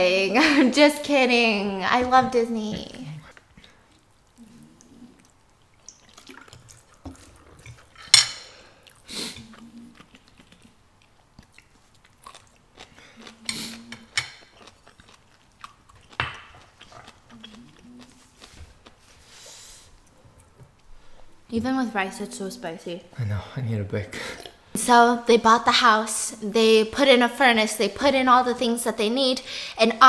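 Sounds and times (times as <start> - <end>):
chewing noodles: 3.3 - 8.0, 8.8 - 21.3
person humming mm: 13.2 - 14.1, 17.3 - 18.3.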